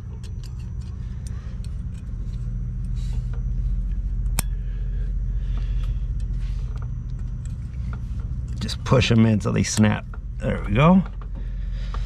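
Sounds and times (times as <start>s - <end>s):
steady low hum: 0.0s - 12.0s
metallic clips ticking and tapping: 6.2s - 11.3s.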